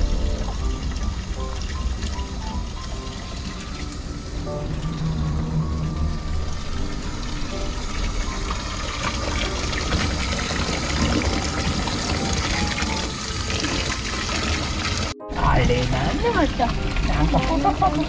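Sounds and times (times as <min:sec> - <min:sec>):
tap water running into steel bowl: 0:08.0 - 0:15.1.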